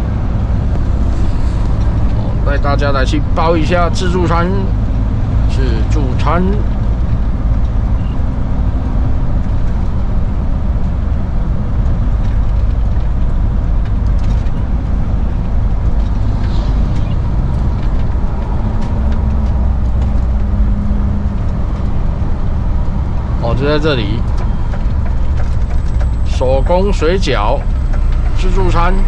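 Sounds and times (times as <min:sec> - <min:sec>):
faint engine hum: 0:00.0 - 0:29.0
road noise: 0:00.0 - 0:29.0
vehicle engine rumble: 0:00.0 - 0:29.0.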